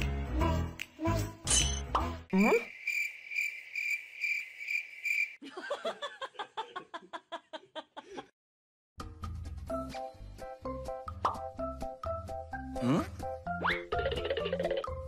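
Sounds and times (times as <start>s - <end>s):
cricket chirping: 2.4s - 5.4s.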